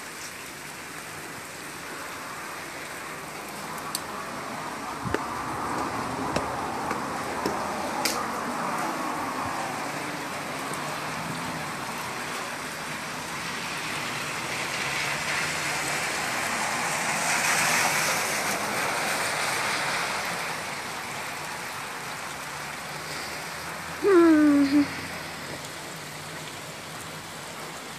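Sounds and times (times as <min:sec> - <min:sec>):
rain and rushing floodwater: 0:00.0 - 0:27.9.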